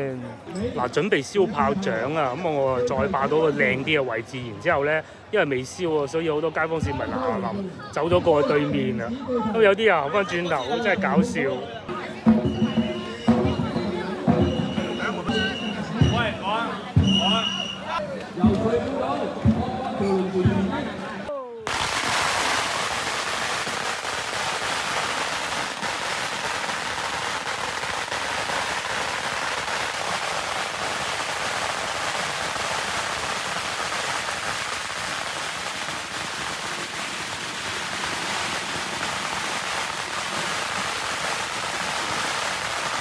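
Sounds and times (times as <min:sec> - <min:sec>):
string of firecrackers crackling: 0:21.6 - 0:43.0.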